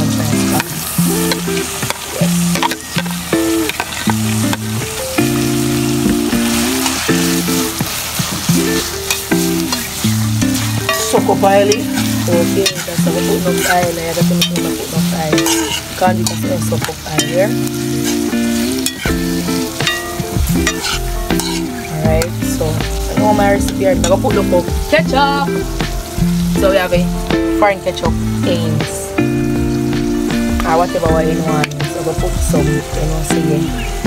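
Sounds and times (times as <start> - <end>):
food sizzling: 0.0 - 34.0
metal spoon scraping a pot: 11.7 - 14.7, 15.3 - 16.4, 20.6 - 21.7.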